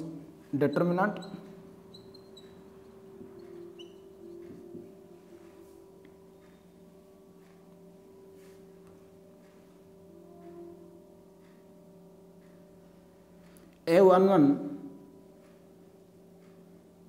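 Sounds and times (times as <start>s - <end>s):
low hum: 0.0s - 17.0s
marker squeaking on whiteboard: 0.6s - 4.5s.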